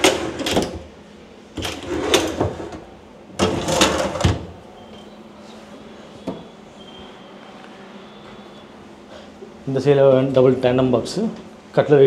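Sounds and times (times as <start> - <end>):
basket drawers sliding on runners: 1.6 - 2.8.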